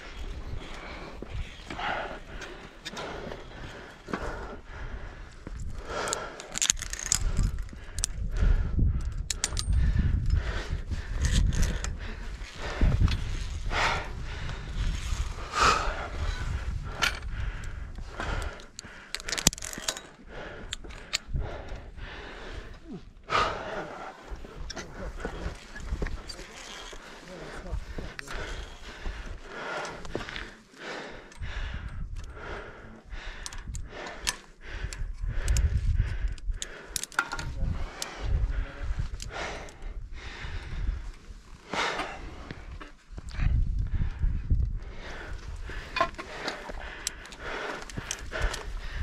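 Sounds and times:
wind buffeting microphone: 0:00.0 - 0:19.6, 0:20.2 - 0:26.4, 0:31.1 - 0:49.0
person breathing hard: 0:00.0 - 0:49.0
metal carabiners clinking: 0:05.7 - 0:08.2, 0:09.0 - 0:13.6, 0:16.3 - 0:21.8, 0:24.3 - 0:28.9, 0:36.3 - 0:38.1.

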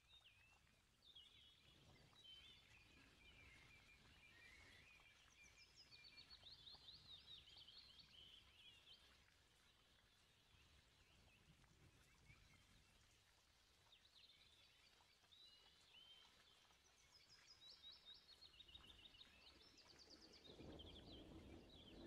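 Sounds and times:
small birds chirping: 0:13.8 - 0:22.0.

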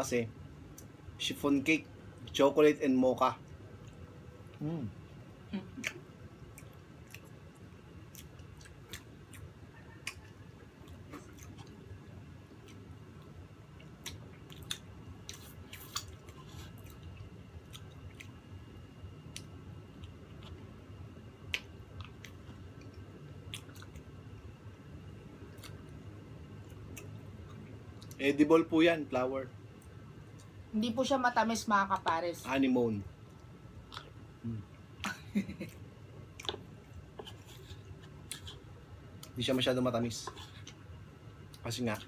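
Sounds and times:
wet chewing: 0:05.8 - 0:18.4, 0:21.4 - 0:24.1, 0:25.5 - 0:26.0, 0:26.6 - 0:28.2, 0:33.2 - 0:34.8, 0:35.6 - 0:39.4.

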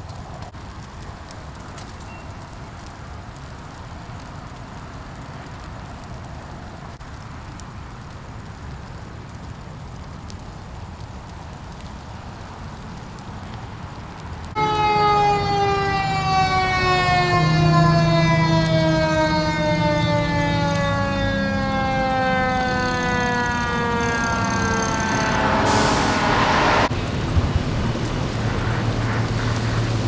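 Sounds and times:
fire engine siren winding down: 0:14.5 - 0:26.9
loud hiss: 0:25.5 - 0:26.7.

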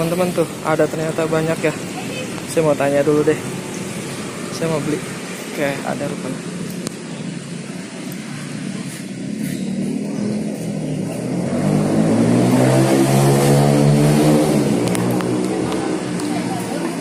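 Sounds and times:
vehicle engine passing by: 0:08.1 - 0:17.0.

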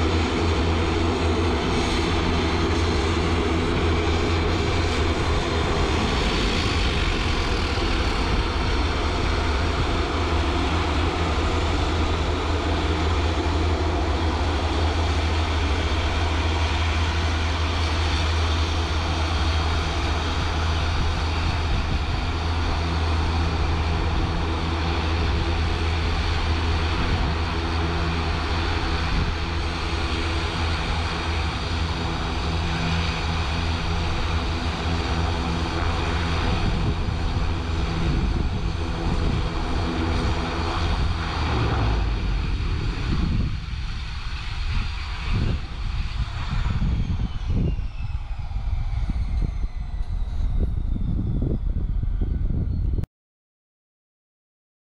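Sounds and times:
turboprop engines droning: 0:00.0 - 0:53.0.

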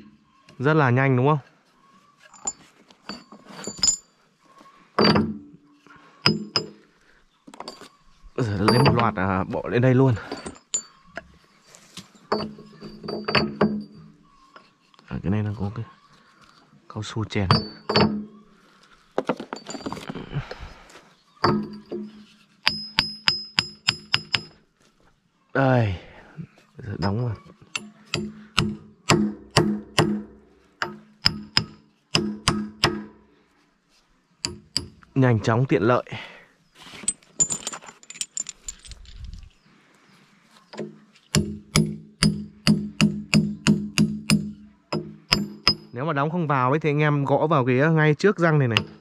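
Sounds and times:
parts clinking: 0:02.2 - 0:04.2, 0:05.0 - 0:05.6, 0:06.2 - 0:14.8, 0:17.3 - 0:18.4, 0:19.1 - 0:24.7, 0:26.8 - 0:33.2, 0:34.4 - 0:35.2, 0:36.8 - 0:39.6, 0:40.7 - 0:46.0
hammer ringing on metal pin: 0:08.6 - 0:09.2, 0:17.5 - 0:18.2, 0:22.7 - 0:24.6, 0:41.4 - 0:46.0
hammer striking steel: 0:27.0 - 0:33.2, 0:41.4 - 0:46.0.

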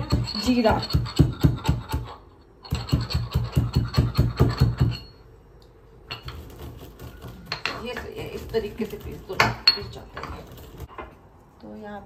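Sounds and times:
pestle pounding in mortar: 0:00.0 - 0:05.1.

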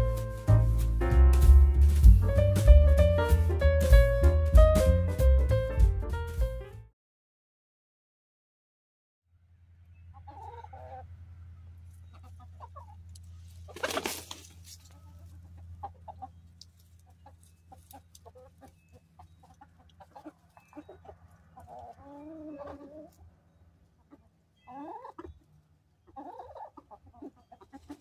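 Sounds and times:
hens clucking: 0:10.1 - 0:28.0.

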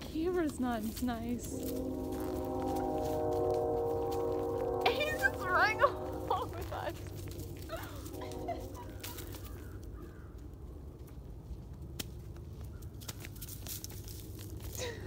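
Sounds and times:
horse hooves crunching leaves: 0:00.0 - 0:15.0
low rumble: 0:01.3 - 0:10.0.

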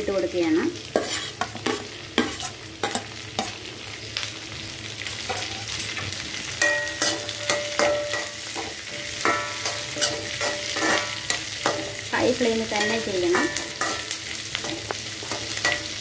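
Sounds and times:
vegetables sizzling: 0:00.0 - 0:16.0
spatula scraping metal pan: 0:00.9 - 0:03.5, 0:07.0 - 0:12.0.

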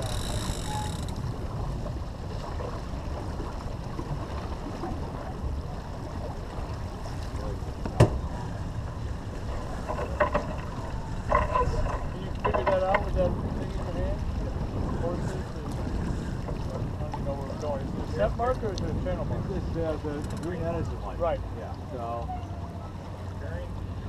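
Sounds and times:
water rushing past hull: 0:00.0 - 0:24.0
wind buffeting microphone: 0:00.0 - 0:24.0.

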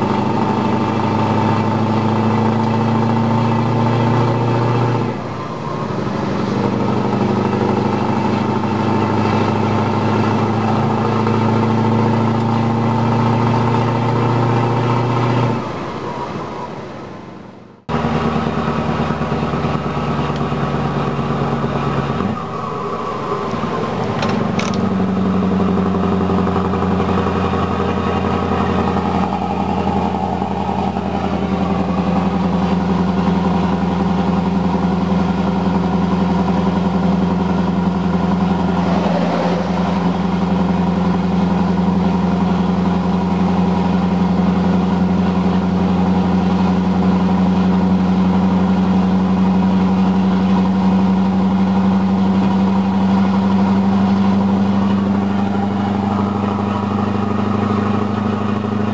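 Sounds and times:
diesel engine low drone: 0:00.0 - 0:58.9.

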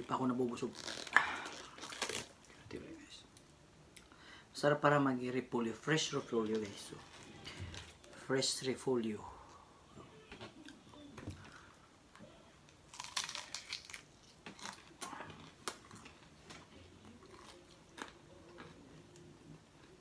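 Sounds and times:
cabbage leaves tearing: 0:00.5 - 0:02.3, 0:12.9 - 0:15.9
crunchy chewing: 0:12.9 - 0:16.3, 0:17.0 - 0:19.9.

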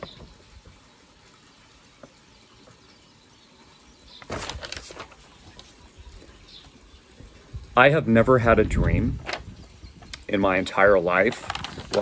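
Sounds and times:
paper rustling: 0:04.2 - 0:06.0, 0:11.2 - 0:12.0.

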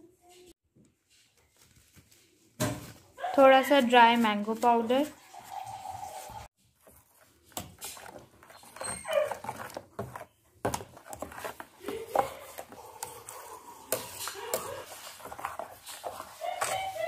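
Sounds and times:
metal spoon scraping steel bowl: 0:04.8 - 0:17.0.

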